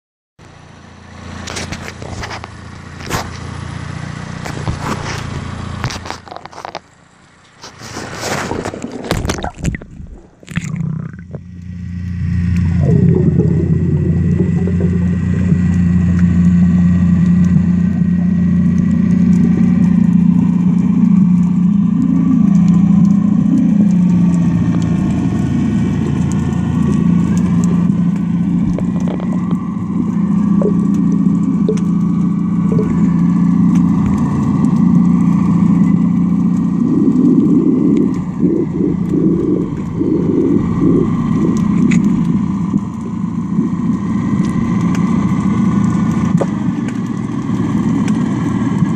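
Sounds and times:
boat engine underwater drone: 0:00.4 - 0:48.9.

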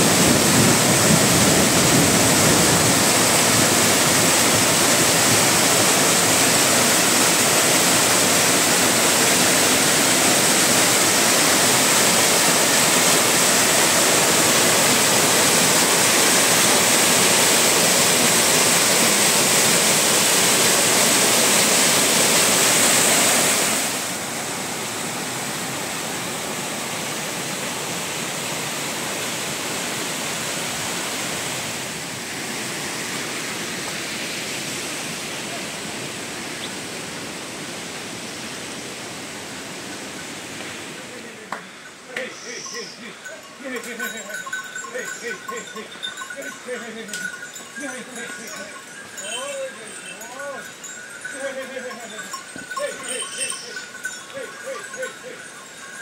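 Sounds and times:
rushing water: 0:00.0 - 0:56.0.

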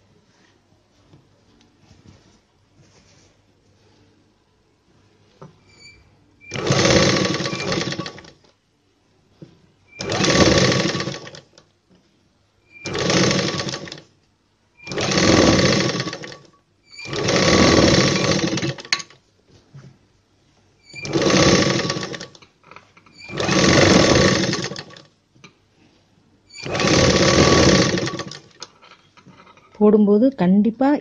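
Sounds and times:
sewing machine stitching: 0:06.4 - 0:08.5, 0:09.9 - 0:11.6, 0:12.7 - 0:14.1, 0:14.8 - 0:19.2, 0:20.9 - 0:22.5, 0:23.1 - 0:25.2, 0:26.5 - 0:28.8.

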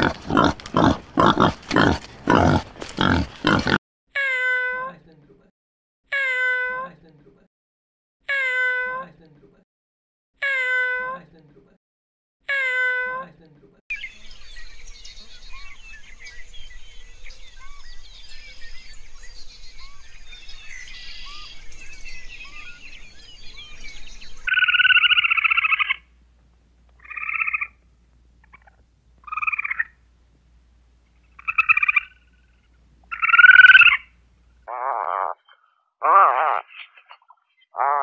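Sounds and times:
small chirps and calls: 0:13.9 - 0:26.0
squirrel chattering trill: 0:33.1 - 0:34.1, 0:34.7 - 0:38.0.

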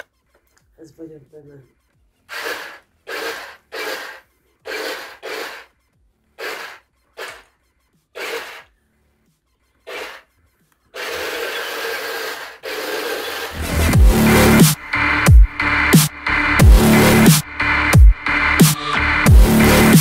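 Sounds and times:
toy tank motors whirring: 0:02.3 - 0:05.7, 0:06.4 - 0:07.5, 0:08.2 - 0:08.7, 0:09.9 - 0:10.3, 0:10.9 - 0:13.6.

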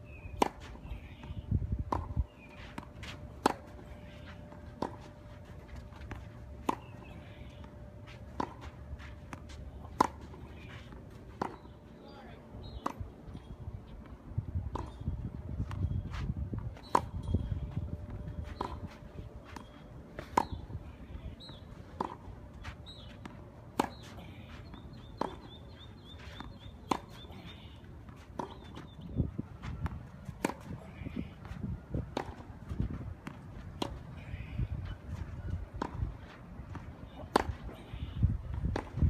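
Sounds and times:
tennis ball bouncing on clay: 0:00.1 - 0:13.3, 0:14.0 - 0:39.0
tennis ball struck by rackets: 0:00.3 - 0:11.8, 0:16.6 - 0:29.0, 0:29.6 - 0:31.1, 0:32.1 - 0:32.5, 0:35.8 - 0:37.8.

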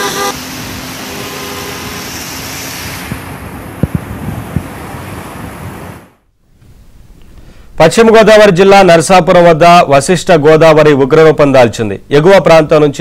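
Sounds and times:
car horn: 0:00.0 - 0:02.1
road traffic: 0:00.0 - 0:06.4.

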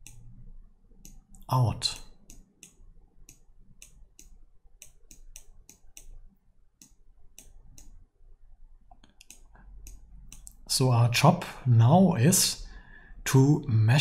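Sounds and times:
faint low hum: 0:00.0 - 0:14.0
mouse buttons clicking: 0:01.0 - 0:08.0, 0:08.9 - 0:10.6.

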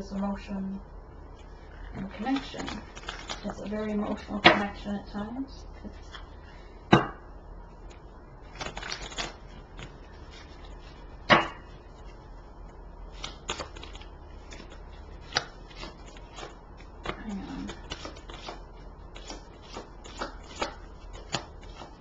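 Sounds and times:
cards being shuffled: 0:01.4 - 0:04.3, 0:07.9 - 0:11.0, 0:13.1 - 0:22.0.

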